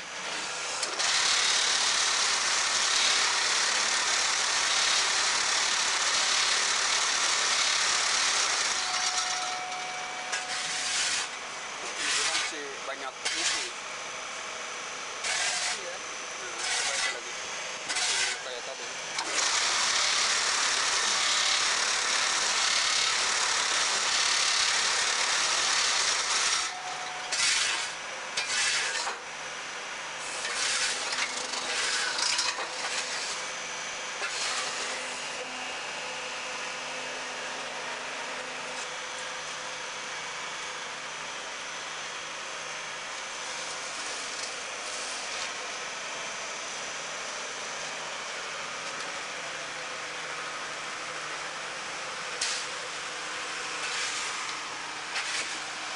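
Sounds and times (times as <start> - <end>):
steady machine hum: 0.0 - 28.5
loud bursts and rasping: 0.2 - 14.0, 14.6 - 29.2, 30.1 - 37.4.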